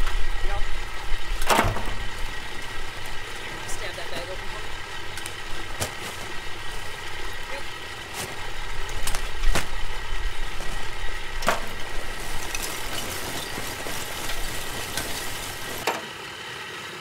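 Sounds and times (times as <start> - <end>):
low hum: 0.0 - 15.9
sharp clicks and knocks: 11.4 - 16.1.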